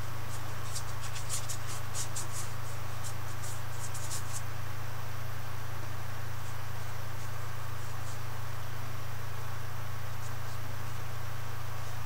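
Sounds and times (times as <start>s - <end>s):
paintbrush scratching on canvas: 0.0s - 4.5s, 6.4s - 8.3s
steady low hum: 0.0s - 12.0s.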